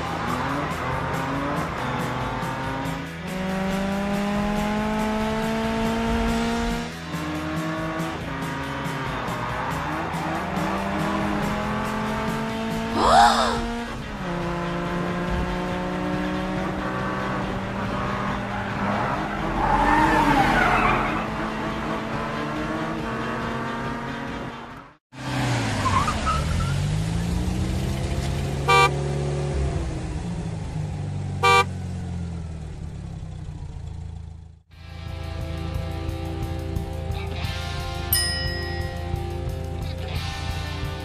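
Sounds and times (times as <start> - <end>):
cartoon engines humming: 8.8 - 14.4
horn toots: 28.6 - 29.0, 31.4 - 31.7.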